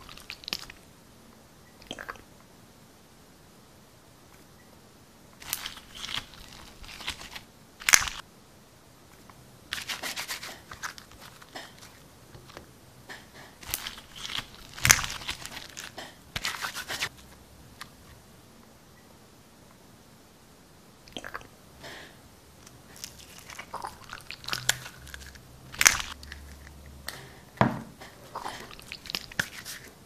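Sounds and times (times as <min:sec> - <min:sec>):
slime crackling and crinkling: 0:00.0 - 0:00.8, 0:05.4 - 0:08.2, 0:09.7 - 0:12.6, 0:13.6 - 0:17.3, 0:22.9 - 0:26.8, 0:28.2 - 0:30.0
sharp slime crack: 0:05.4 - 0:08.2, 0:13.6 - 0:17.1, 0:23.1 - 0:26.3.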